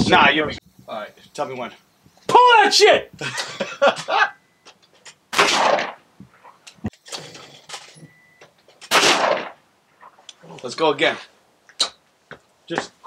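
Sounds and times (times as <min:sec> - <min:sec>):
shotgun shot: 0:05.3 - 0:06.0, 0:08.9 - 0:09.6.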